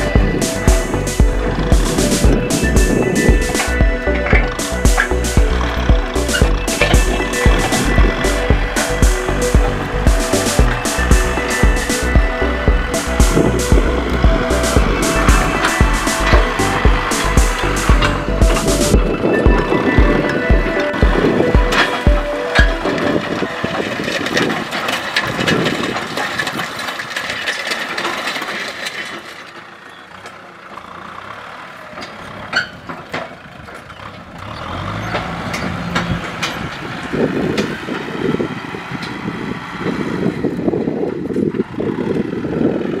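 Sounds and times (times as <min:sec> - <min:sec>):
tractor diesel engine under load: 0:00.0 - 0:43.0
sharp clicks and knocks: 0:00.1 - 0:29.6.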